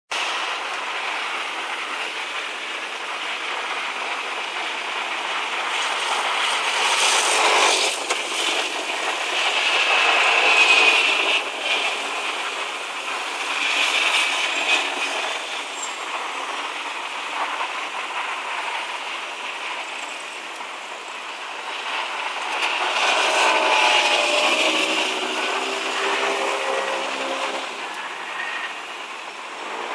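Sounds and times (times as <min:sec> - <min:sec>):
engine hum: 0:00.2 - 0:29.9
cars rushing by: 0:22.0 - 0:29.9.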